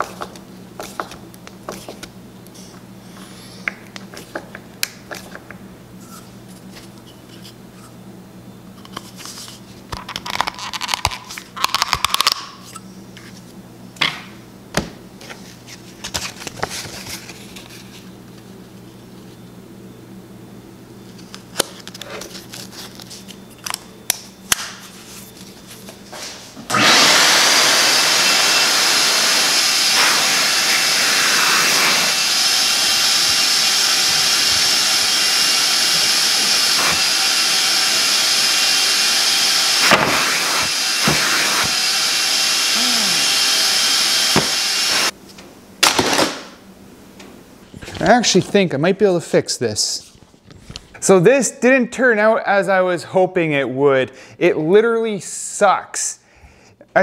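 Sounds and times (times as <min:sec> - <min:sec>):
vacuum rushing hiss: 0:26.2 - 0:45.1.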